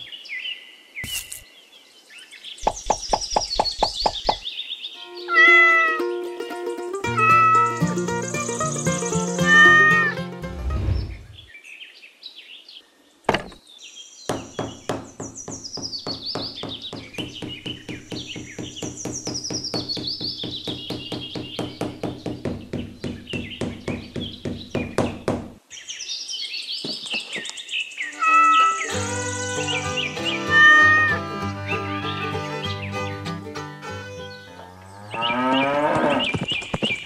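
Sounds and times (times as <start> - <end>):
instrumental music with plucked beat: 5.0 - 10.9, 28.9 - 34.5.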